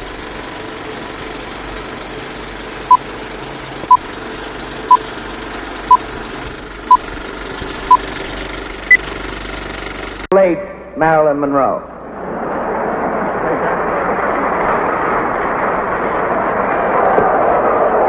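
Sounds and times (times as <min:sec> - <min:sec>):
film projector clatter and hiss: 0:00.0 - 0:10.3.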